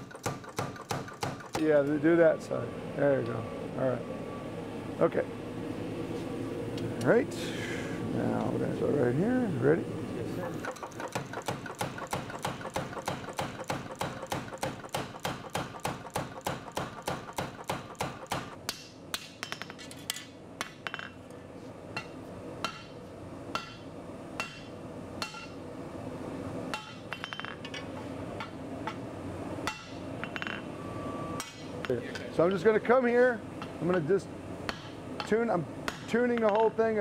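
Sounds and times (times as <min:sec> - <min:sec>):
hand hammer striking on anvil: 0:10.7 - 0:19.8.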